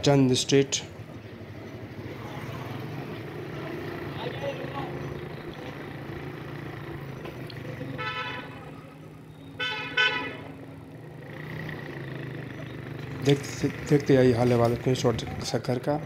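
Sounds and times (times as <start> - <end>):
low rumble of street traffic: 0.0 - 16.0
vehicle horn honking: 7.9 - 10.6.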